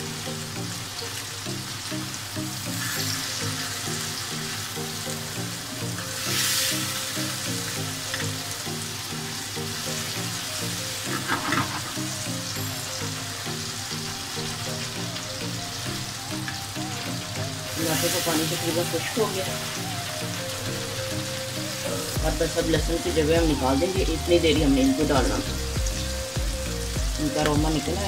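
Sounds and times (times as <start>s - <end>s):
background music: 0.0s - 28.0s
tomato and garlic sizzling in oil: 0.0s - 28.0s
spatula scraping pan: 11.0s - 12.3s.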